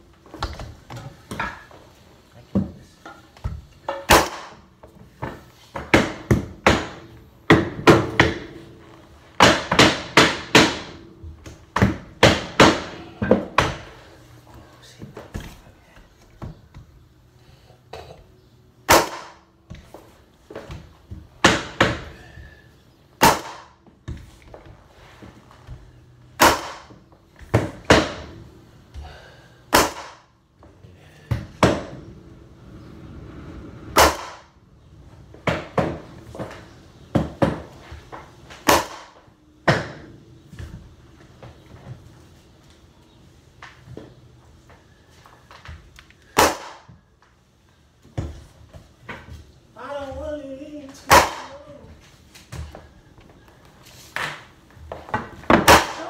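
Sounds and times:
pneumatic flooring nailer bangs: 0:33.9 - 0:34.5.

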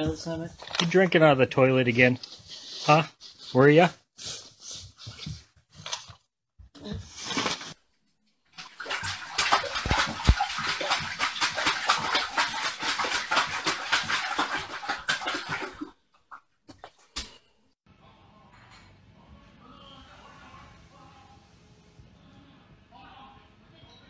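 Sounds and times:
dog lapping water: 0:08.6 - 0:17.2.

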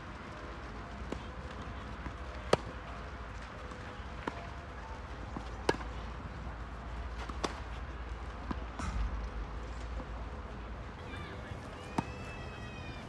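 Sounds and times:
tennis ball bouncing: 0:05.4 - 0:06.0, 0:07.2 - 0:07.7.

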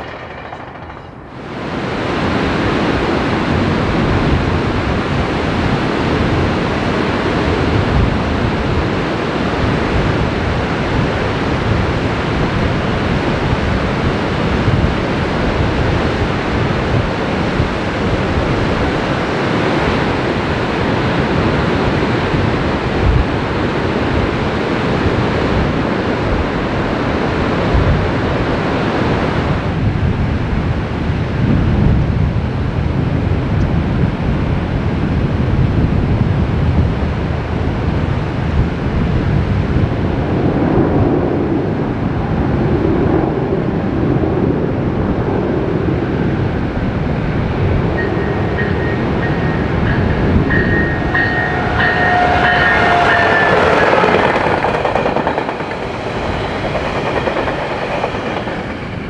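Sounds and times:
wind on microphone: 0:01.4 - 0:59.0
ocean surf rushing: 0:46.3 - 0:59.0.

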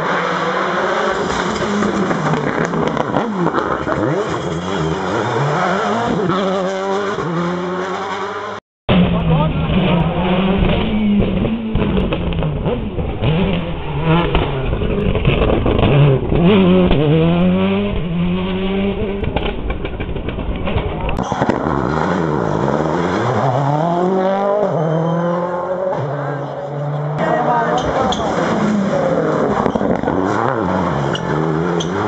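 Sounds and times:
rally cars revving past: 0:00.0 - 0:19.4, 0:21.3 - 0:32.0.

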